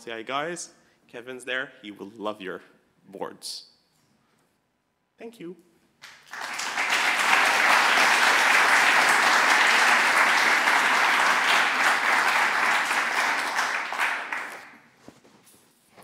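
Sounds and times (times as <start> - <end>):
audience applauding: 6.0 - 14.8.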